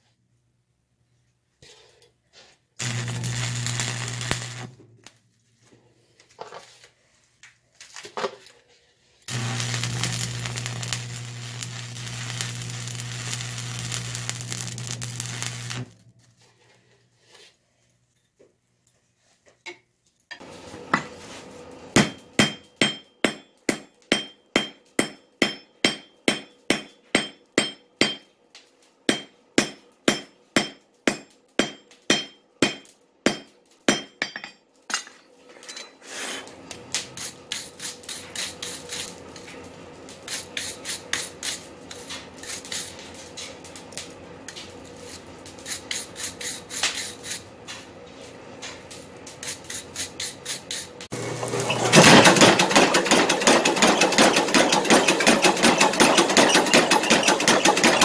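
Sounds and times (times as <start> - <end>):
steady hum: 2.8 - 5.0, 9.3 - 16.1
hammer striking steel on anvil: 22.0 - 28.3, 29.1 - 35.1.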